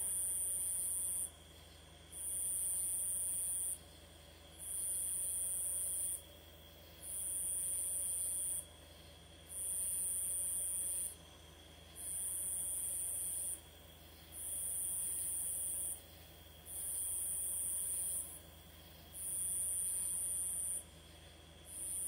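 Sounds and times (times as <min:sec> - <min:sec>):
insects buzzing trill: 0:07.0 - 0:22.0.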